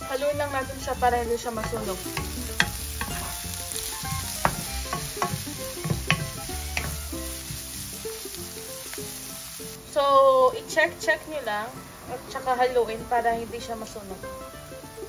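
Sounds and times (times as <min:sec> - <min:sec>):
onions sizzling in hot oil: 0:00.0 - 0:15.0
spatula scraping and tapping pan: 0:01.2 - 0:09.1.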